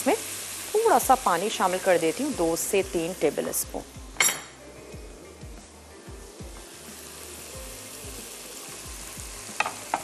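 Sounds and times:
food sizzling in a wok: 0.0 - 10.0
soft music with low beat: 2.3 - 10.0.

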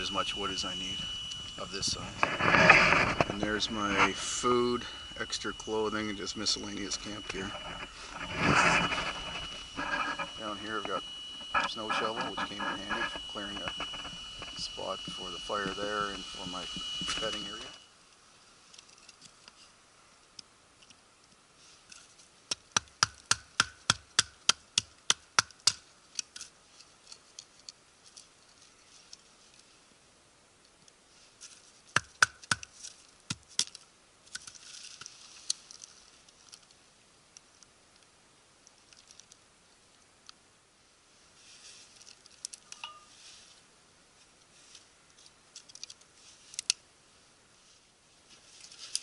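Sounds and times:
scraping hiss: 0.0 - 17.8, 41.2 - 45.3.

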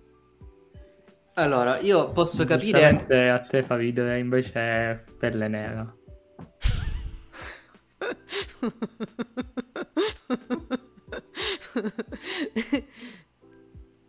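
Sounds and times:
people laughing hard: 7.4 - 12.9.

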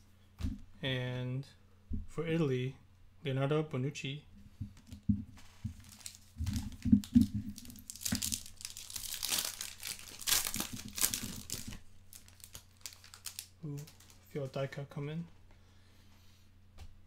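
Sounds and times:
plastic foil wrapper crinkling and tearing: 5.7 - 14.3.

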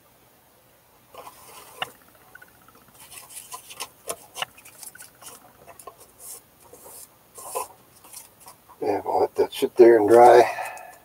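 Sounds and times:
rapid fine ticking: 1.1 - 8.7
light scraping: 1.1 - 8.8.

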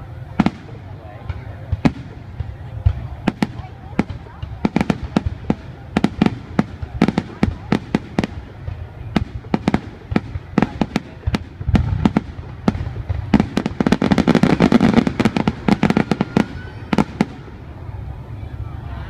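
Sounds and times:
fireworks bursting: 0.0 - 18.3.

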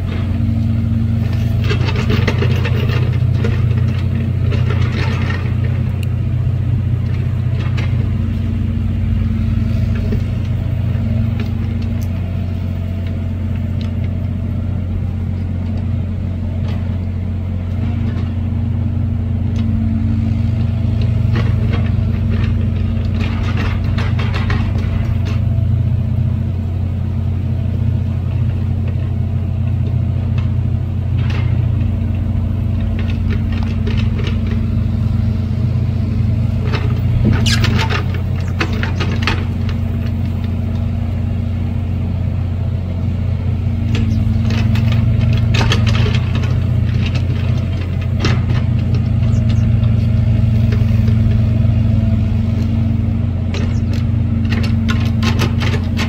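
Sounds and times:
vehicle engine idling: 0.0 - 56.0.

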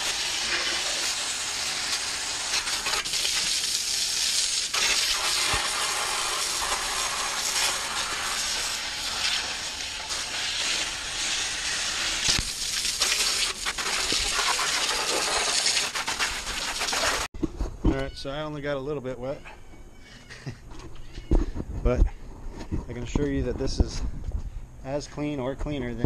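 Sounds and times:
hose spraying water: 0.0 - 17.3
water spattering off grids: 0.0 - 17.3.

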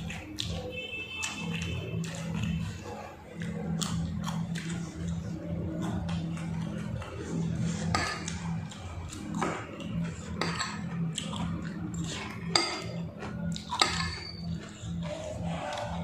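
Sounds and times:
steady low hum: 0.0 - 16.0
cutlery clinking on plate: 10.4 - 11.0, 13.7 - 14.4.

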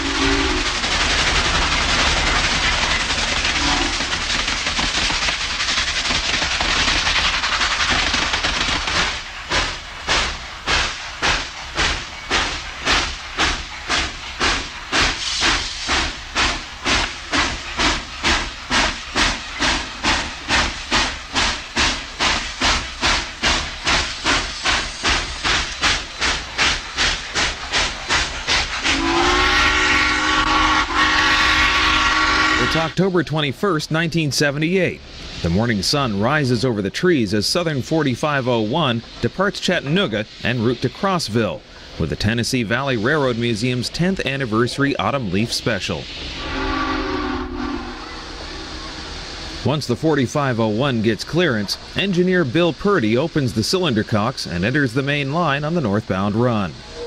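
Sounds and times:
steam hissing: 0.0 - 57.0
steam locomotive exhaust chuffs: 0.0 - 57.0
steam whistle: 28.8 - 32.9, 46.4 - 48.7.

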